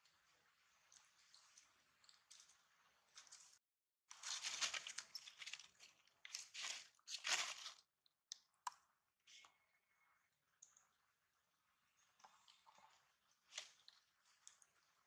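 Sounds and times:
dry leaves crackling and crunching: 4.1 - 7.8.

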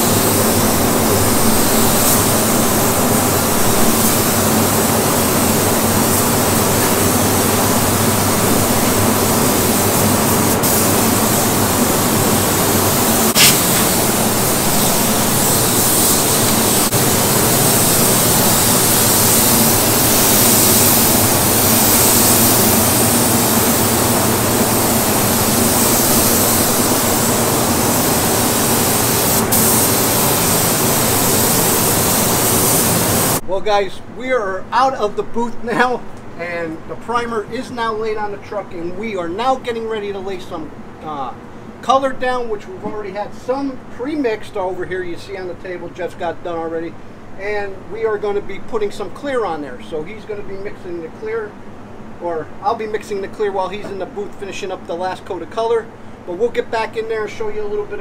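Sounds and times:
spray gun air hiss: 0.0 - 33.4
ventilation rush and hum: 0.0 - 58.0.

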